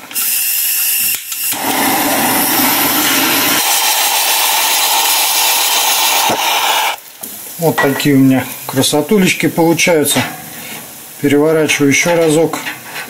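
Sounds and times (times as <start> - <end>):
gas torch flame hissing: 0.0 - 7.6.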